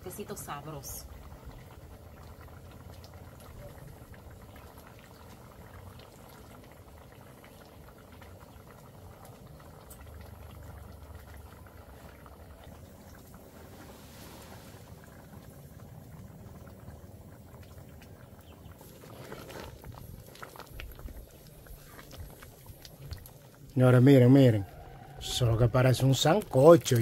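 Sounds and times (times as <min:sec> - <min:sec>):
fire popping: 0:00.0 - 0:27.0
pot of food boiling: 0:00.0 - 0:27.0.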